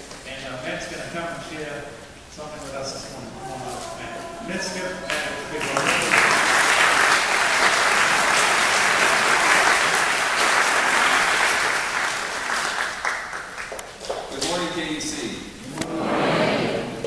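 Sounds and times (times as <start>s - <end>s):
congregation applauding: 4.6s - 15.0s.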